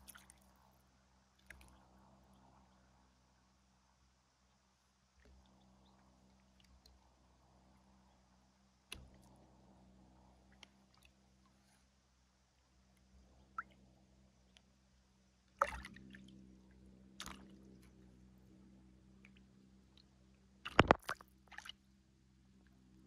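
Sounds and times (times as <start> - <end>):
water splashes and plops: 0.0 - 0.6, 15.6 - 16.4, 17.2 - 18.0, 20.6 - 21.8.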